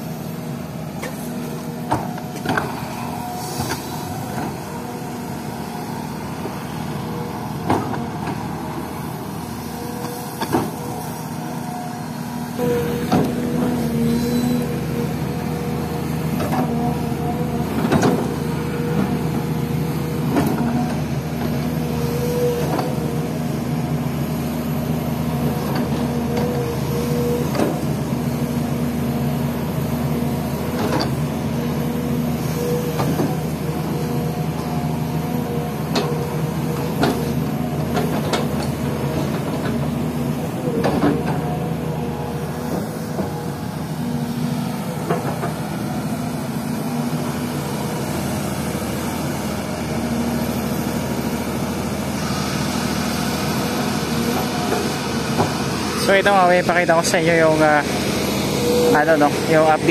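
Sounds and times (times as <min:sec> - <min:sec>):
excavator diesel engine: 0:00.0 - 0:59.9.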